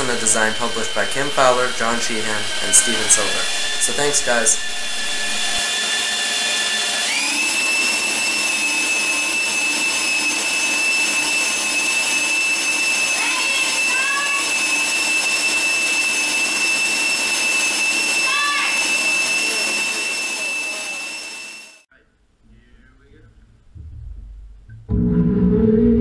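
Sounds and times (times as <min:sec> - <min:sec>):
water churning: 0:00.0 - 0:05.6
drill motor whine: 0:00.0 - 0:21.9.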